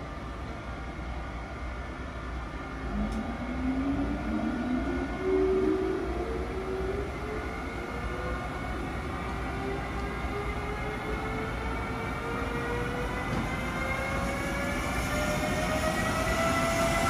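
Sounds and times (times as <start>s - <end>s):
electric locomotive motor whine: 0.0s - 17.0s.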